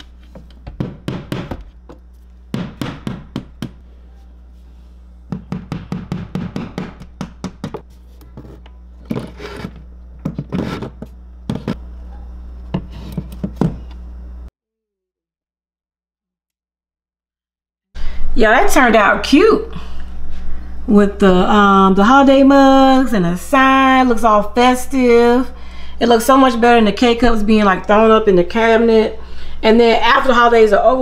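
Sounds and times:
low steady hum: 0:00.0 - 0:14.5.

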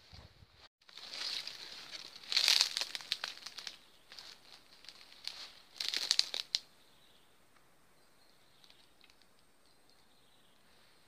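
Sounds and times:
dry leaves crackling underfoot: 0:00.8 - 0:06.6.

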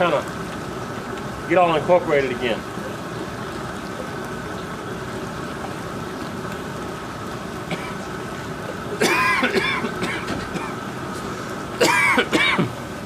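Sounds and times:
pot of water boiling: 0:00.0 - 0:13.0
man coughing and clearing throat: 0:07.7 - 0:08.0, 0:09.0 - 0:10.8, 0:11.8 - 0:12.8.

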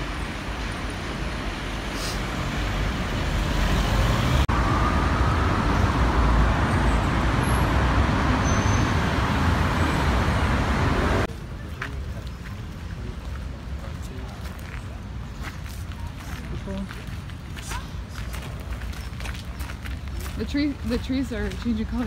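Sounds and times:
street traffic rumble: 0:00.0 - 0:22.0.

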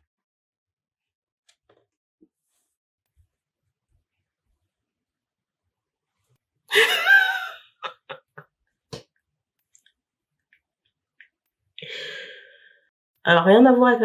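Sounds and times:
woman exhaling: 0:11.8 - 0:12.7.

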